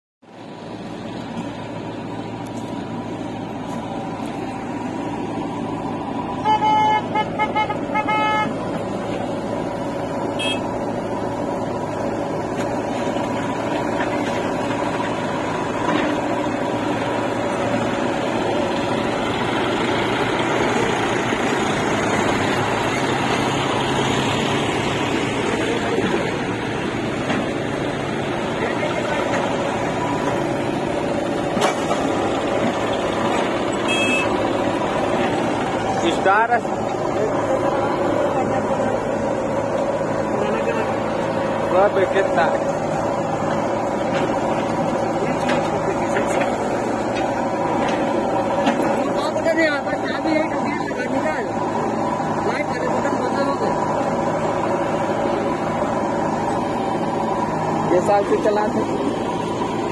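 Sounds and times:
diesel engines running: 0.2s - 59.9s
vehicle horn short toots: 6.4s - 8.6s, 10.4s - 10.7s, 33.8s - 34.4s.

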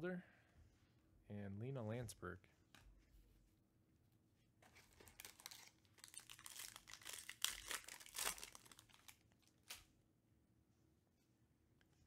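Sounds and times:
foil wrapper crinkling and tearing: 4.8s - 9.8s.

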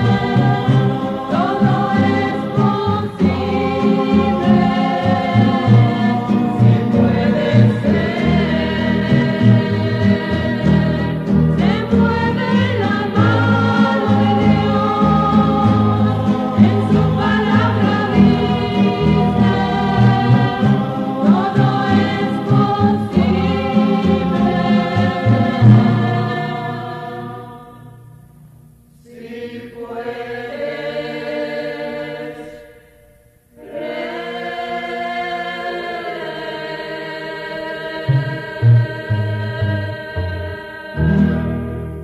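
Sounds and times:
string accompaniment: 0.0s - 26.9s
choir singing in harmony: 0.0s - 28.2s, 29.0s - 42.0s.

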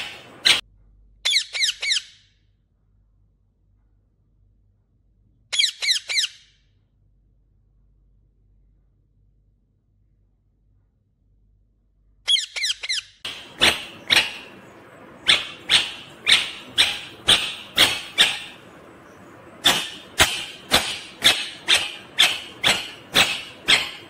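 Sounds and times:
parakeet calling: 0.0s - 0.6s, 1.2s - 2.2s, 5.5s - 6.5s, 12.3s - 24.0s.

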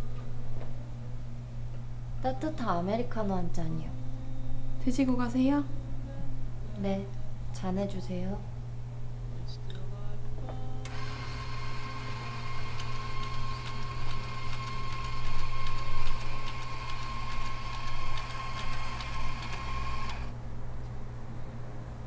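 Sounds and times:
low hum: 0.0s - 12.8s
coffee grinder grinding beans: 10.9s - 20.3s.

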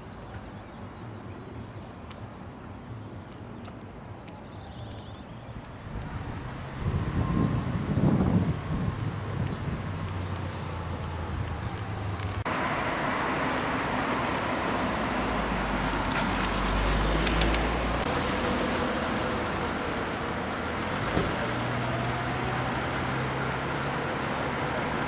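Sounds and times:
steady traffic noise: 0.0s - 25.0s
vehicle rumbling by: 5.9s - 25.0s.

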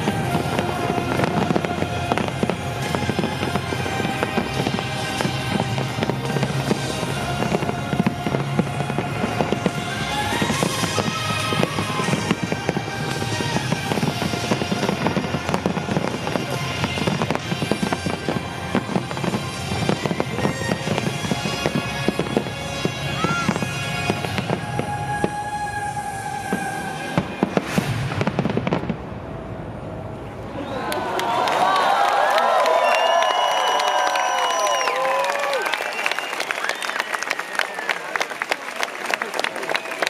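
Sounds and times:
music playing: 0.0s - 28.9s
fireworks bursting and crackling: 0.0s - 30.8s, 31.7s - 40.0s.

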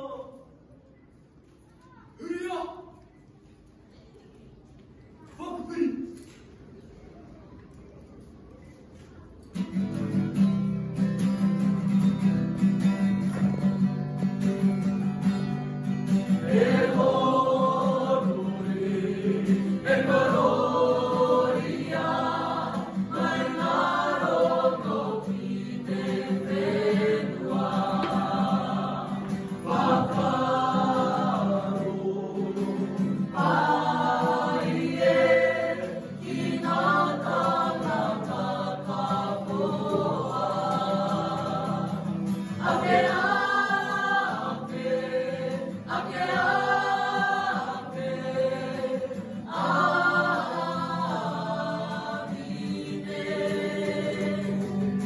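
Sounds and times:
children's choir singing: 16.0s - 55.0s.

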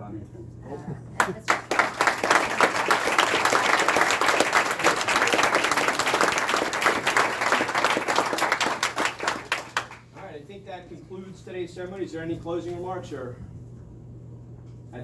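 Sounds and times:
people applauding: 1.2s - 10.1s.

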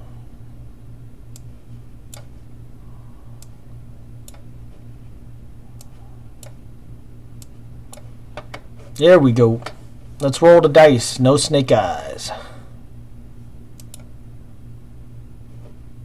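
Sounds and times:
low electrical hum: 0.0s - 16.0s
sharp computer clicks: 2.1s - 2.3s, 4.2s - 4.5s, 13.8s - 14.1s.

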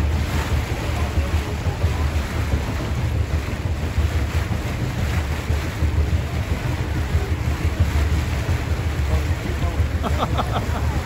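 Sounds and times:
water wash: 0.0s - 11.0s
wind buffeting microphone: 0.0s - 11.0s.

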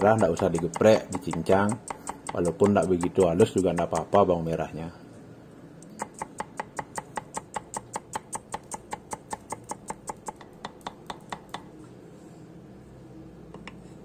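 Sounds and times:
cleaver chopping on wooden board: 0.0s - 4.1s.

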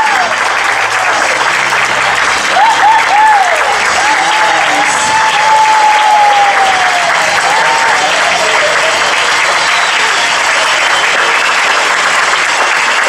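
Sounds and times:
audience applauding: 0.0s - 13.0s
long high cheer: 0.0s - 13.0s.

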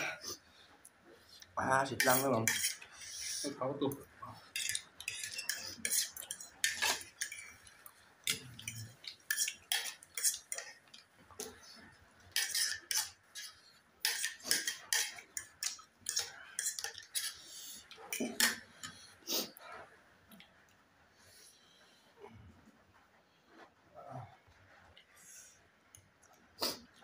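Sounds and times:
forks clinking on plates: 4.5s - 11.0s, 12.3s - 17.4s, 18.1s - 19.0s.

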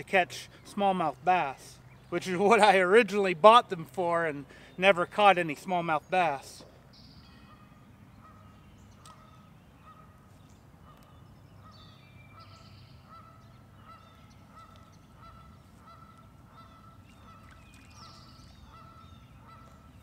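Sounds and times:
bird chirps: 5.9s - 20.0s
faint repeated animal calls: 7.4s - 20.0s.

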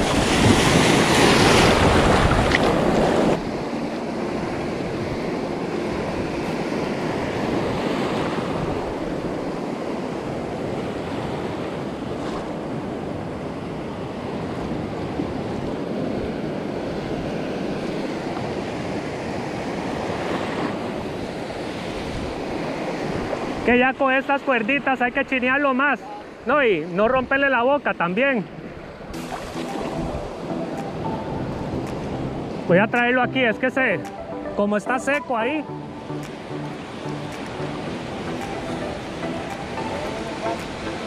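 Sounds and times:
wind buffeting microphone: 0.0s - 23.6s
ocean surf breaking: 0.0s - 41.0s.

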